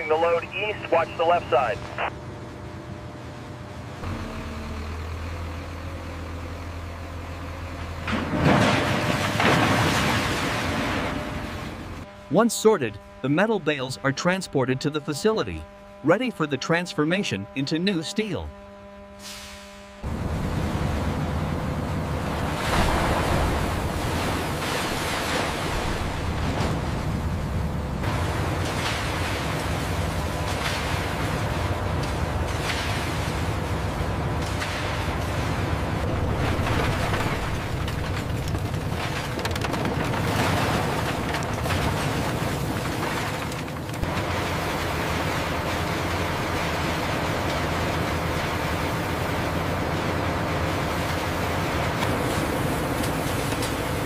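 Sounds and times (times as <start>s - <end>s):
truck engine idling: 0.0s - 8.3s
faint industrial hum: 0.0s - 54.0s.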